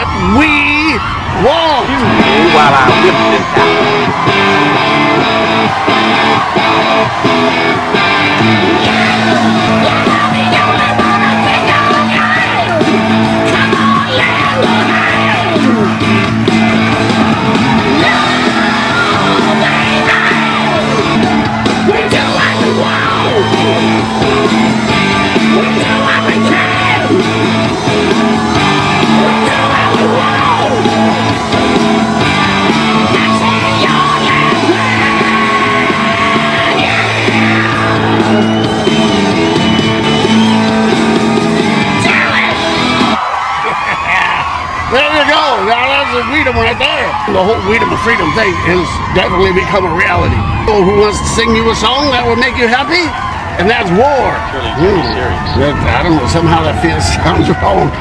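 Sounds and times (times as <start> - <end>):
rock song with male singer: 1.0 - 44.9
electric guitar: 1.9 - 45.0.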